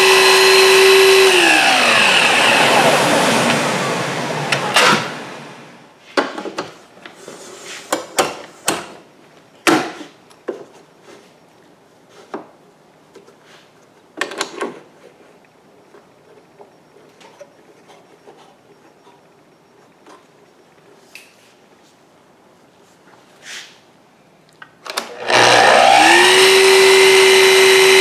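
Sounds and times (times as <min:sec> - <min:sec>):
miter saw winding down: 0:00.0 - 0:05.8, 0:25.1 - 0:28.0.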